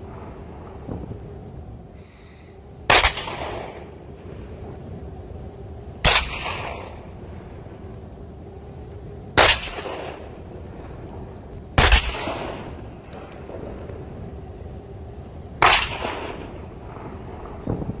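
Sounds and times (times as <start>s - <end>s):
cannon shots with rolling echo: 2.9s - 3.9s, 6.0s - 7.0s, 9.4s - 10.2s, 11.8s - 12.9s, 15.6s - 17.0s.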